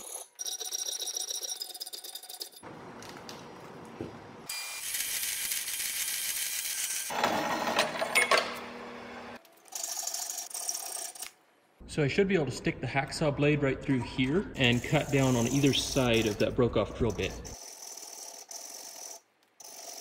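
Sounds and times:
bandsaw cutting steel: 0:04.5 - 0:10.5.

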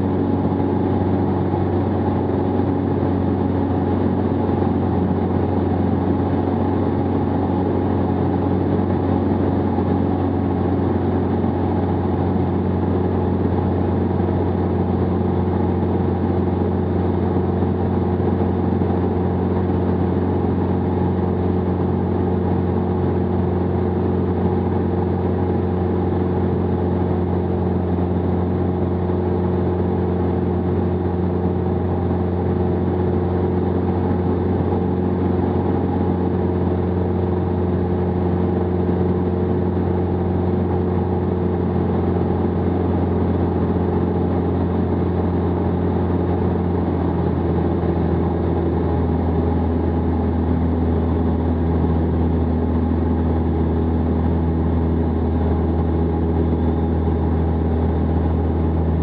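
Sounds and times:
light aircraft engine droning: 0:00.0 - 0:59.0.

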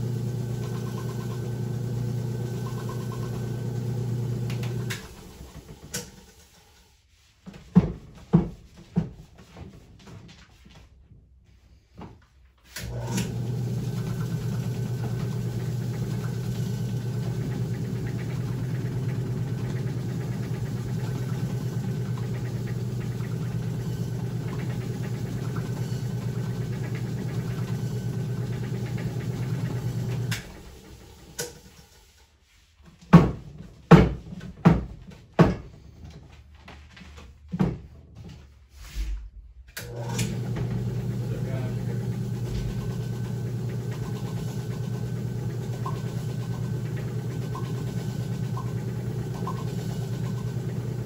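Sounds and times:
spinner motor humming: 0:00.0 - 0:05.2, 0:12.8 - 0:30.6, 0:40.1 - 0:51.0.

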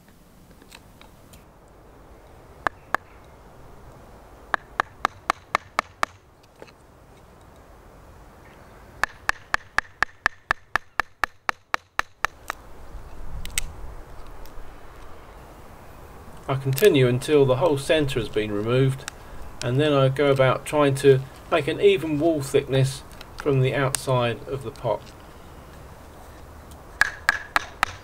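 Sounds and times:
gouge tapping into wood: 0:27.0 - 0:28.0.

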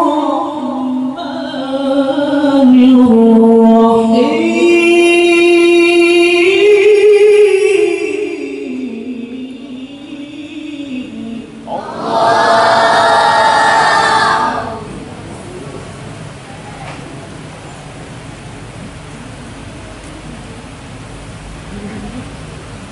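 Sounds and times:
outcry of many voices: 0:04.2 - 0:07.5, 0:11.0 - 0:17.0.

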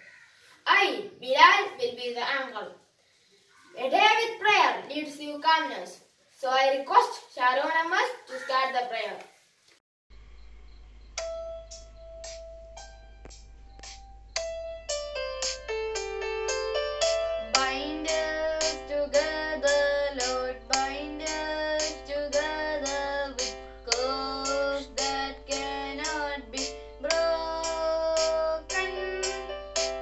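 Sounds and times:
child singing: 0:17.6 - 0:30.0.

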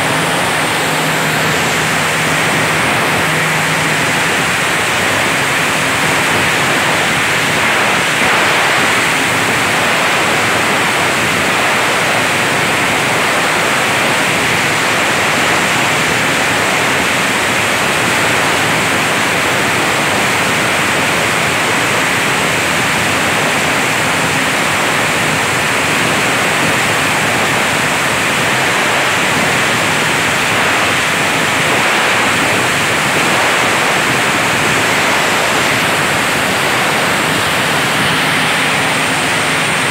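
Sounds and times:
plastic grinding machine running: 0:00.0 - 0:13.3, 0:32.2 - 0:39.9.

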